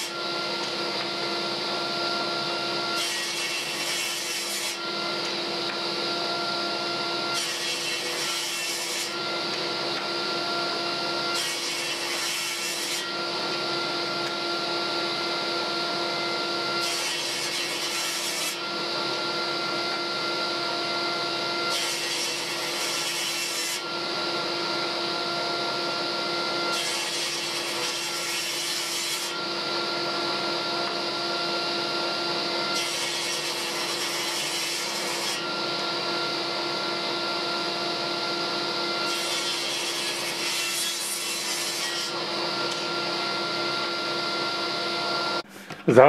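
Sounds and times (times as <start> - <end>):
table saw motor hum: 0.0 - 45.9
saw blade ripping wood: 16.8 - 18.6, 21.6 - 23.8, 39.0 - 42.9.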